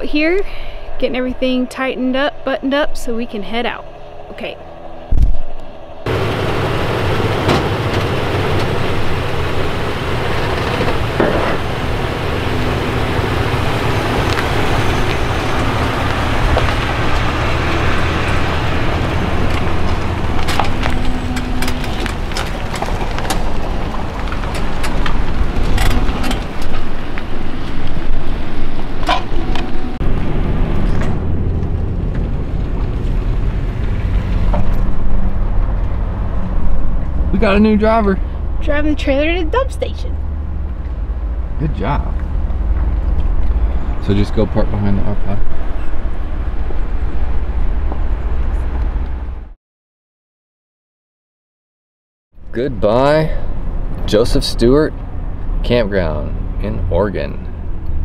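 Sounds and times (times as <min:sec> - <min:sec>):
pickup engine idling: 0:06.0 - 0:46.8.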